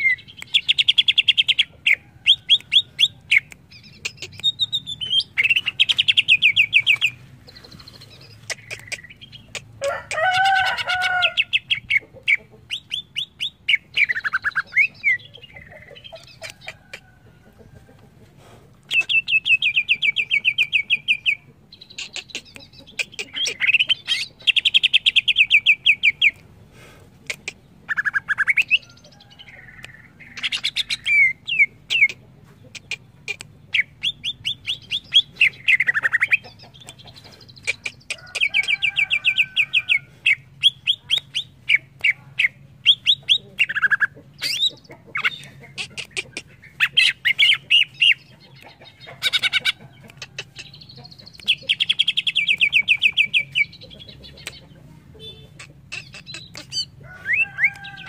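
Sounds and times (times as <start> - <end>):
bird singing trills: 0.0 - 9.7, 27.9 - 58.0.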